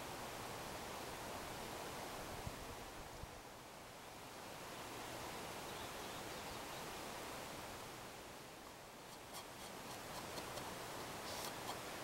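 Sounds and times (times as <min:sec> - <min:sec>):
rag rubbing on wood: 0:09.1 - 0:12.0.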